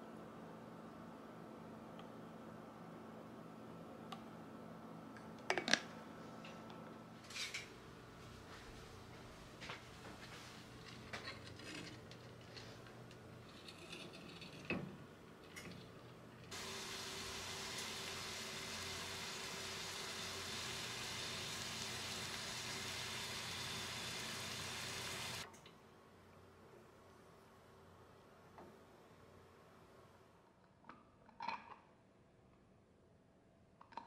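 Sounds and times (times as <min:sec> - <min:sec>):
water simmering hiss: 0:16.5 - 0:25.5.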